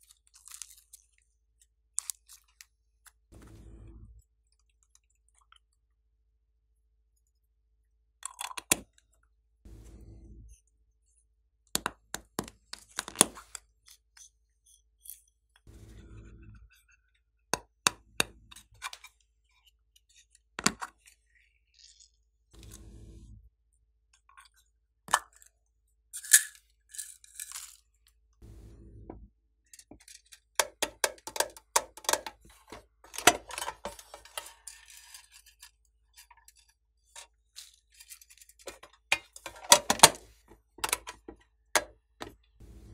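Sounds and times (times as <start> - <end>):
faint low hum: 3.4 - 4.3, 9.7 - 10.6, 15.7 - 16.8, 22.6 - 23.5, 28.4 - 29.3, 42.6 - 42.9
plastic containers clicking: 30.6 - 34.4.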